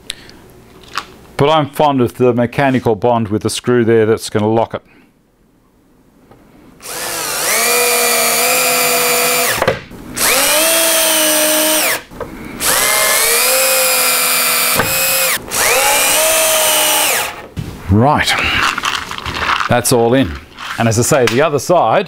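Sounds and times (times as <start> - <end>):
power drill driving screws: 6.8 - 9.6, 10.2 - 12.0, 12.6 - 17.5.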